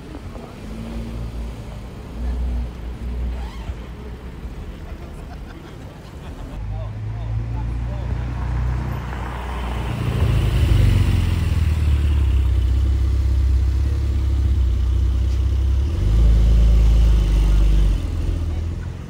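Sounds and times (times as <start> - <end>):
car engine drone pulling away: 7.1 - 19.0.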